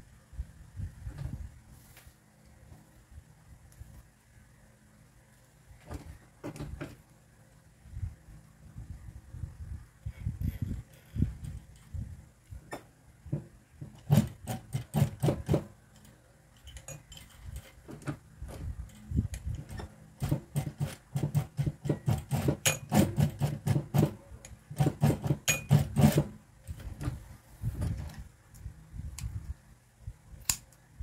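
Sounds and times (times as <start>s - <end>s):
sewing machine stitching: 13.8s - 15.7s, 19.6s - 27.2s.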